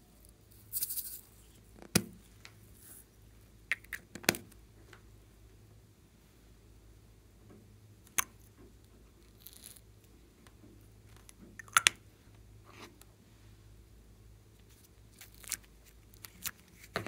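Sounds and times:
soft hiss: 0:00.0 - 0:03.7
faint steady hum: 0:00.0 - 0:17.0.

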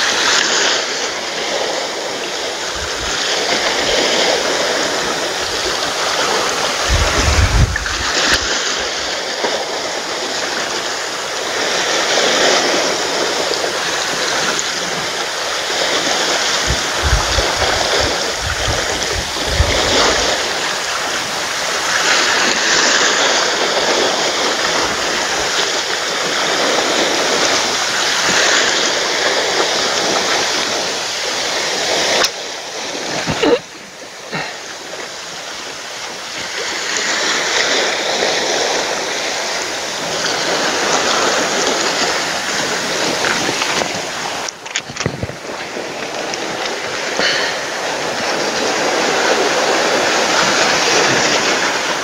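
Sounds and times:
waves washing over rocks: 0:00.0 - 0:52.0
low rumbles: 0:05.3 - 0:09.1.

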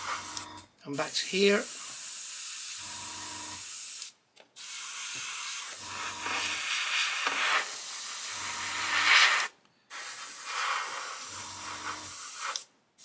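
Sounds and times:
airbrush hissing: 0:00.0 - 0:00.4, 0:03.6 - 0:12.7.

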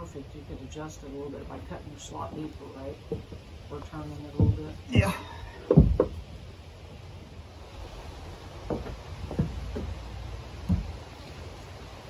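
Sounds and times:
low steady background rumble: 0:00.0 - 0:12.0
soft knocks of logs: 0:04.2 - 0:06.3, 0:08.6 - 0:11.3.

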